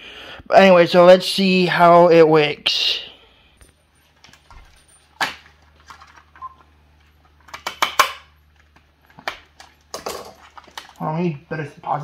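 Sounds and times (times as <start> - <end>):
plastic rustling: 8.5 - 11.2.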